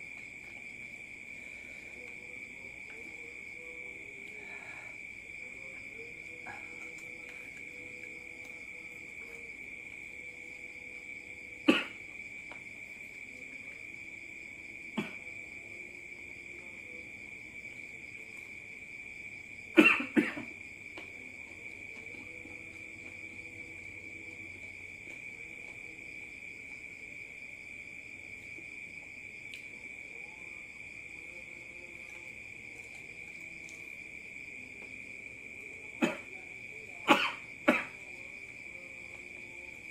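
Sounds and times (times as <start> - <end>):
high-pitched insect trill: 0.0 - 39.9
steady high-pitched whine: 0.0 - 39.9
man coughing: 37.1 - 37.9.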